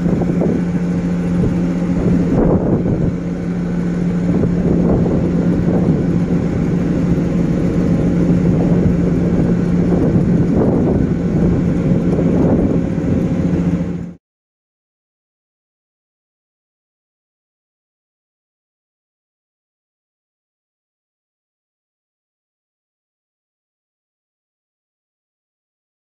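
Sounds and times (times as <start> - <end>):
ship engine droning: 0.0 - 14.2
wind rumbling on microphone: 0.0 - 14.2.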